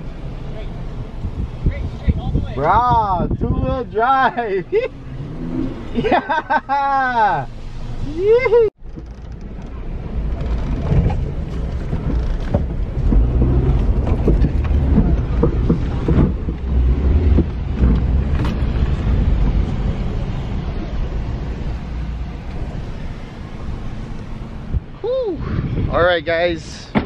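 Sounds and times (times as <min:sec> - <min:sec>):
car engine and tyre rumble: 0:00.0 - 0:27.0
knocks and rattles from bumps: 0:08.8 - 0:19.8.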